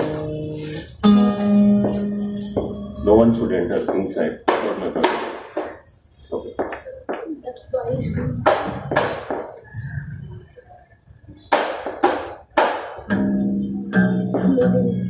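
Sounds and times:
acoustic guitar strumming: 0:00.0 - 0:05.9, 0:11.5 - 0:15.0.

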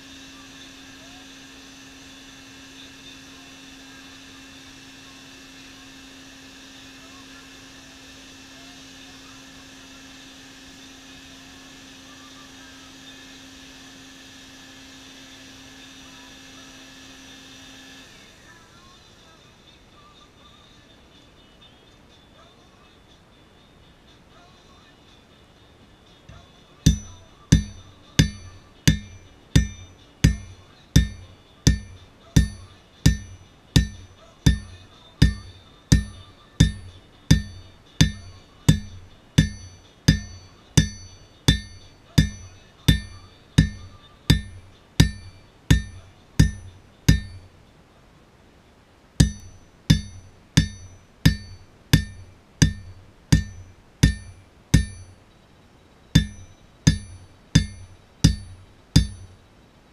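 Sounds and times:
hammer striking steel anvil: 0:26.9 - 0:47.5, 0:49.2 - 0:55.2, 0:56.2 - 0:59.4.

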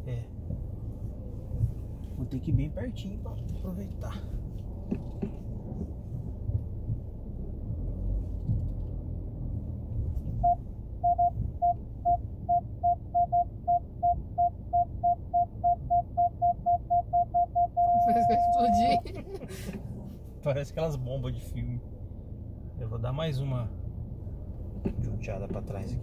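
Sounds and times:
low engine rumble: 0:00.0 - 0:26.0
parking sensor beeping: 0:10.4 - 0:19.1.

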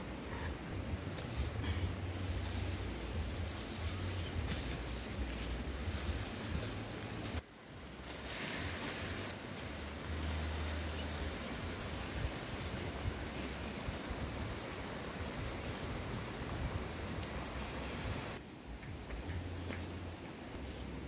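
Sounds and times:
outdoor hiss: 0:00.0 - 0:21.0
wind buffeting microphone: 0:10.1 - 0:19.5.

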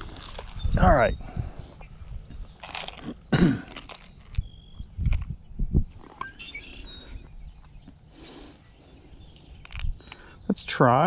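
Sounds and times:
faint high chirps: 0:05.6 - 0:11.0.

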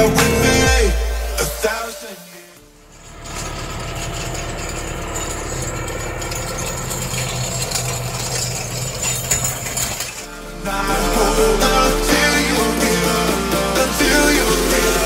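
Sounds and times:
tractor diesel engine running: 0:02.7 - 0:15.0
harrow chains rattling: 0:02.8 - 0:10.3.

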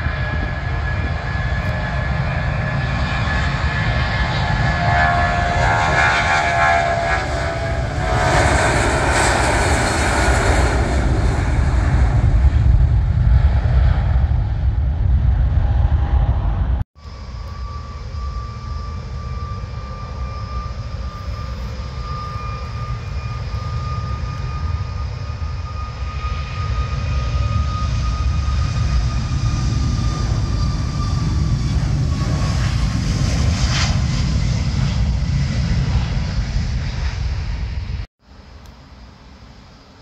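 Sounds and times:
jet engines whining: 0:00.0 - 0:38.1
wind noise: 0:00.0 - 0:38.1
low rumble: 0:06.8 - 0:26.0.

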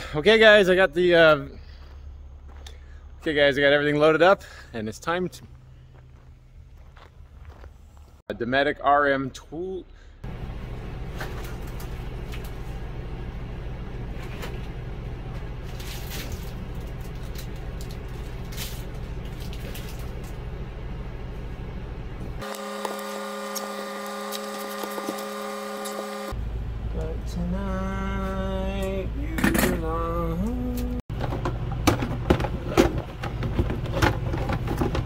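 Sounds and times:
low machine hum: 0:09.2 - 0:35.0.

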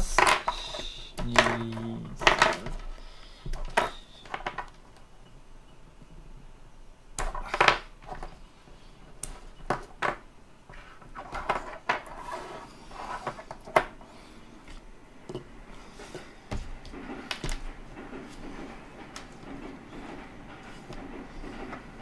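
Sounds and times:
plastic battery packs clicking and tapping: 0:00.0 - 0:05.0.

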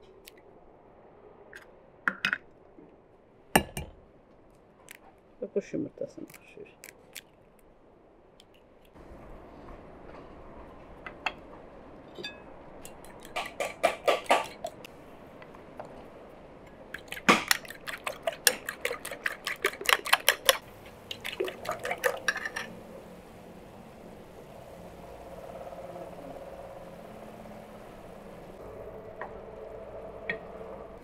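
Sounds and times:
fork beating eggs in bowl: 0:17.0 - 0:22.7.

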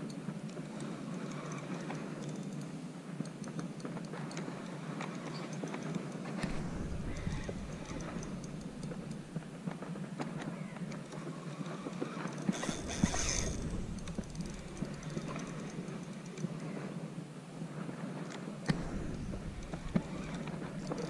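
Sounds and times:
handling rumble: 0:06.4 - 0:09.8, 0:12.4 - 0:16.2, 0:18.7 - 0:21.0
fishing reel clicking: 0:06.8 - 0:09.3, 0:12.1 - 0:16.4, 0:19.1 - 0:21.0.

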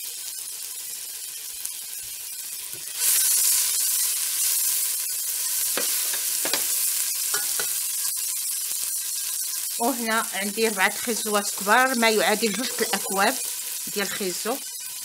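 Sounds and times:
vegetables sizzling in oil: 0:00.0 - 0:15.0
spatula scraping pot: 0:10.9 - 0:14.2.

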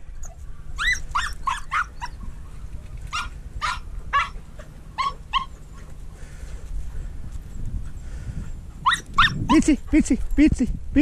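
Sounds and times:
dog yelping barks: 0:00.2 - 0:02.5, 0:03.1 - 0:05.8, 0:08.8 - 0:09.7.

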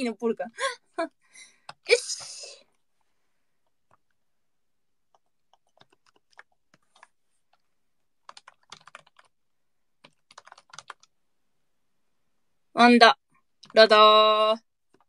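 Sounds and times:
faint keyboard typing: 0:01.6 - 0:04.3, 0:05.0 - 0:11.2, 0:13.4 - 0:14.0, 0:14.8 - 0:15.0.

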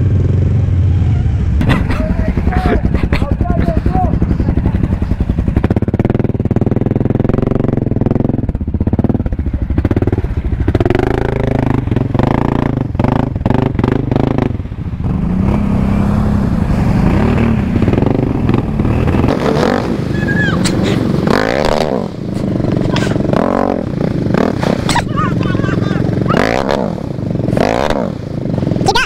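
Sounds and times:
atv engines revving: 0:00.0 - 0:29.0.

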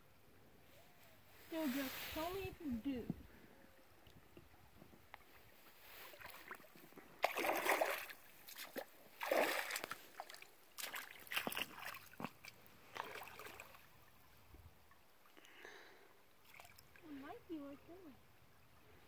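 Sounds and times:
boots splashing through water: 0:06.0 - 0:13.9.

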